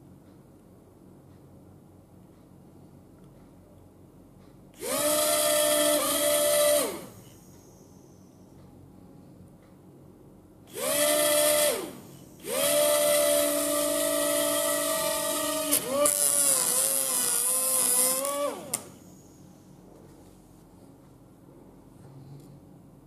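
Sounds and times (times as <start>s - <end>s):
small electric motors whining: 4.8s - 7.3s, 10.7s - 19.4s.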